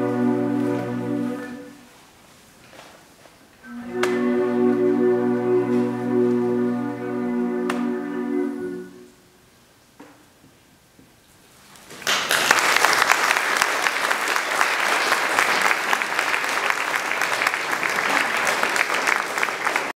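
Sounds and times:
audience applause: 0:12.0 - 0:19.9.

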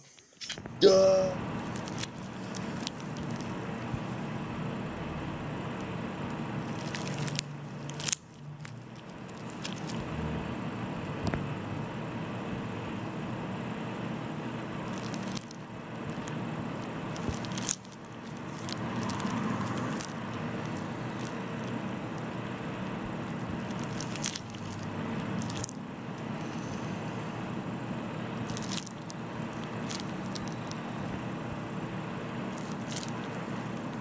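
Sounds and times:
wet squishing and crackling: 0:01.6 - 0:03.7, 0:06.6 - 0:10.1, 0:14.8 - 0:26.6, 0:28.4 - 0:31.2, 0:32.4 - 0:34.0.

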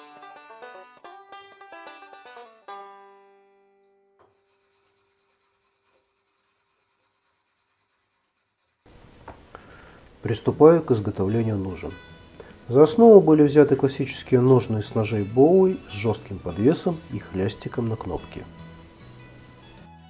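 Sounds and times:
plucked string music: 0:00.0 - 0:04.2, 0:11.0 - 0:20.0.

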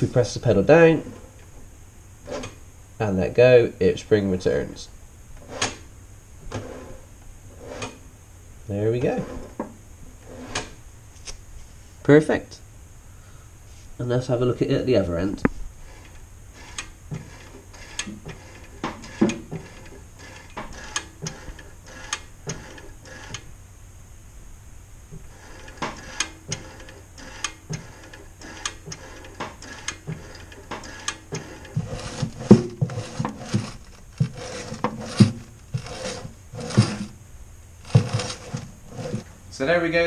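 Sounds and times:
throttle linkage clicking: 0:15.9 - 0:23.4, 0:25.4 - 0:37.1, 0:37.8 - 0:39.2.

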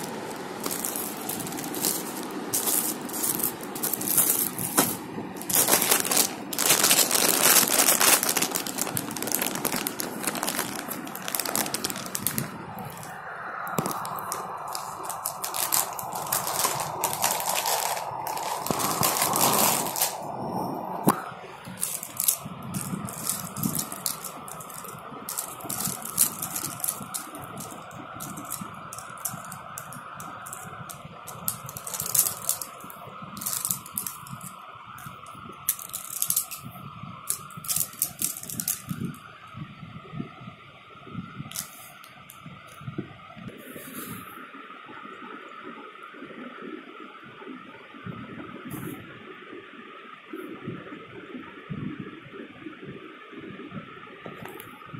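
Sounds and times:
plastic pens clattering: 0:00.0 - 0:20.3, 0:21.1 - 0:39.2, 0:41.5 - 0:42.1
plastic packaging crinkling: 0:00.0 - 0:20.4, 0:21.1 - 0:39.2, 0:41.5 - 0:42.1.

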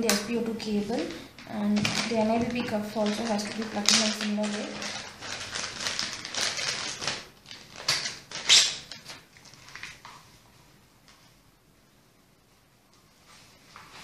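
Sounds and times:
plastic bag crackles: 0:00.6 - 0:10.4
plastic bag crinkling: 0:00.6 - 0:10.4.

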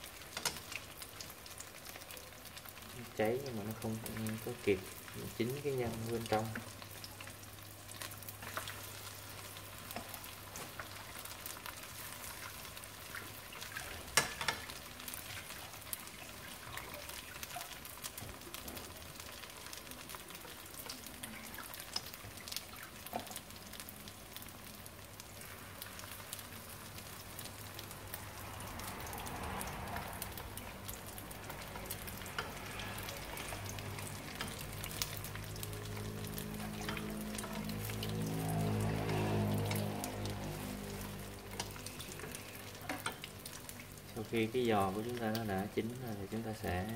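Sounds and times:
oil sizzling and crackling: 0:00.0 - 0:46.9
chopsticks clicking against pan: 0:14.2 - 0:14.7.

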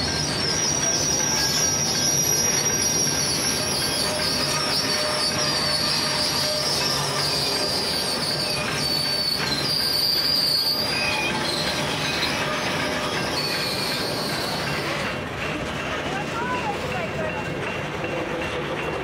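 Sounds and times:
freight train rumbling past: 0:00.0 - 0:19.0
wheels squealing on rails: 0:00.0 - 0:19.0.

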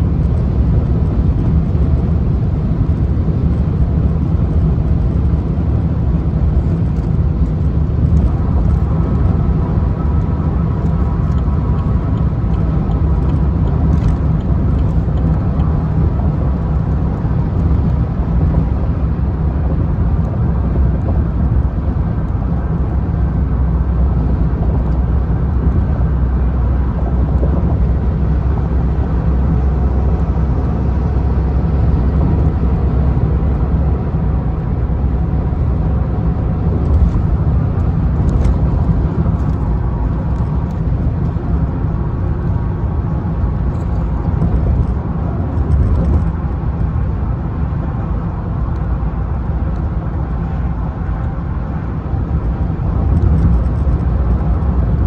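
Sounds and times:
car road and engine rumble: 0:00.0 - 0:55.0.

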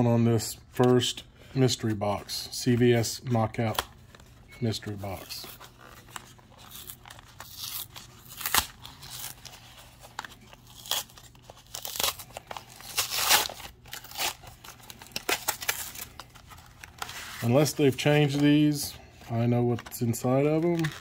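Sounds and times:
cardboard tearing and crinkling: 0:05.1 - 0:18.4, 0:20.6 - 0:21.0.

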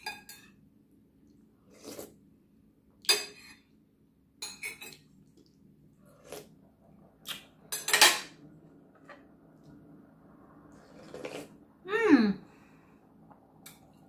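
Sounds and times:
spoon and dishes clattering: 0:00.0 - 0:00.6, 0:03.0 - 0:03.6, 0:04.4 - 0:05.1, 0:07.7 - 0:08.4.

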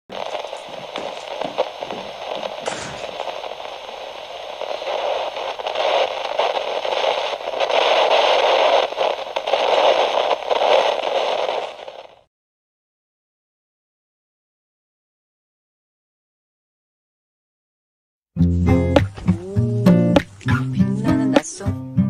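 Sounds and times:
crackling radio static: 0:00.1 - 0:12.3.

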